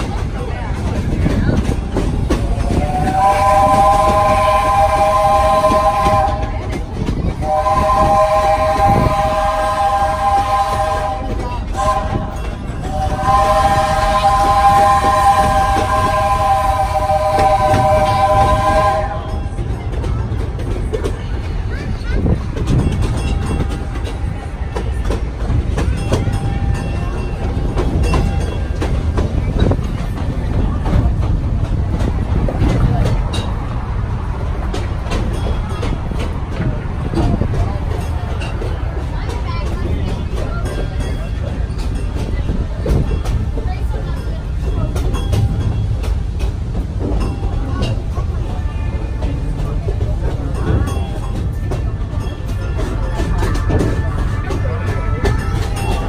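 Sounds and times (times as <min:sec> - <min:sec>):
clanks and rattles: 0:00.0 - 0:03.2, 0:19.3 - 0:56.0
train rumbling and clattering: 0:00.0 - 0:56.0
steam locomotive chime whistle: 0:02.5 - 0:06.7, 0:07.4 - 0:19.6.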